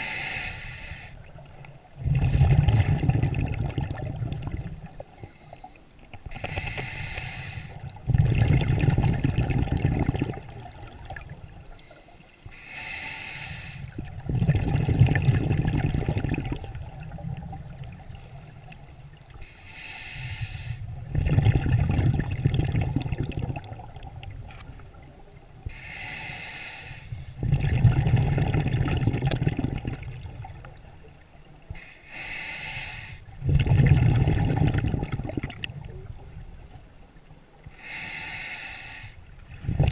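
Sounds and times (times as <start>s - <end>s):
diver inhaling through regulator: 0.0s - 1.2s, 5.2s - 10.3s, 11.8s - 14.0s, 19.4s - 21.5s, 25.6s - 27.6s, 31.7s - 33.3s, 37.7s - 39.3s
exhaled bubbles rumbling: 1.2s - 5.2s, 7.8s - 11.8s, 13.9s - 19.4s, 20.8s - 25.7s, 27.4s - 31.7s, 33.3s - 37.3s, 39.4s - 39.9s.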